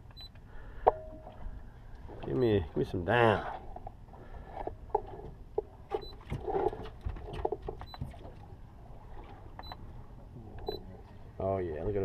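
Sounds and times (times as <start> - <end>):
water slapping against hull: 5.0 - 10.3
faint high-pitched beeps: 10.6 - 10.9.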